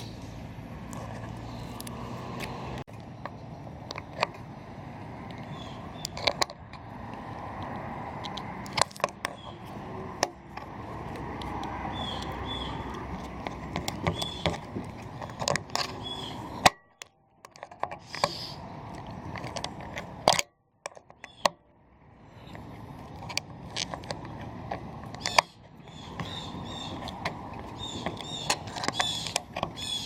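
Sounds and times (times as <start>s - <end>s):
steady background noise: 0.0s - 30.0s
clicks and knocks of tools: 5.2s - 21.6s, 22.5s - 29.9s
short high squeaks: 18.0s - 18.7s, 25.2s - 30.0s.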